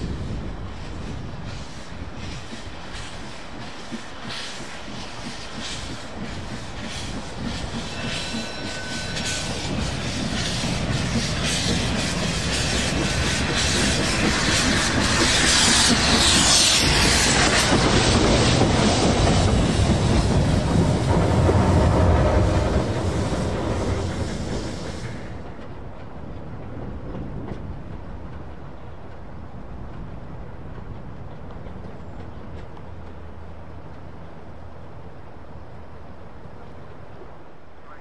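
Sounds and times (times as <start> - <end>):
loud hissing steam: 0.0 - 25.8
steam locomotive chuffing: 0.0 - 34.8.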